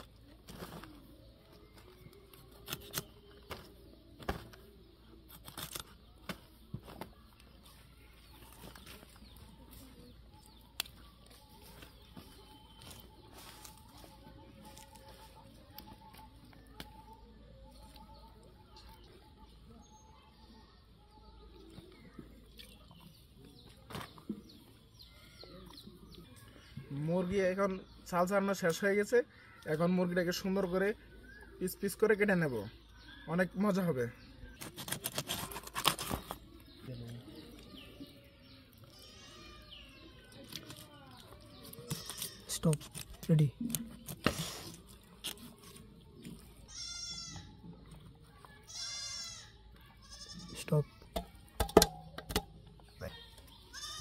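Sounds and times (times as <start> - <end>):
small birds chirping: 0.0 - 54.0
chicken skin being pulled: 34.6 - 36.4, 40.2 - 46.6
goat bleating: 46.7 - 47.6, 48.6 - 50.7, 53.7 - 54.0.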